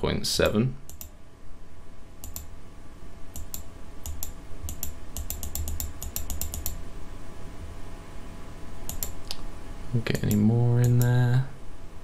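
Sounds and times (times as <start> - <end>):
keyboard keys tapping: 3.4 - 6.8, 8.9 - 9.2.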